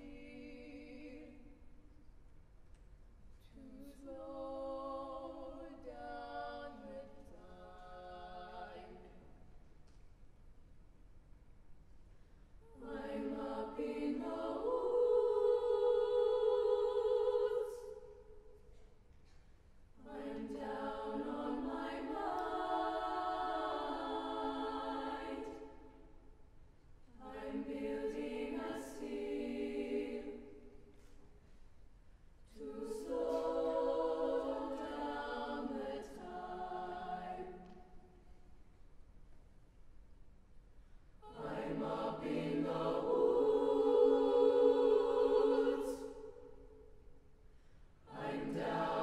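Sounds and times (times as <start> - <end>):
choir singing a cappella: 0.0 - 1.9, 3.6 - 9.4, 12.6 - 18.5, 20.0 - 26.4, 27.1 - 31.2, 32.4 - 38.4, 41.2 - 47.3, 47.9 - 49.0.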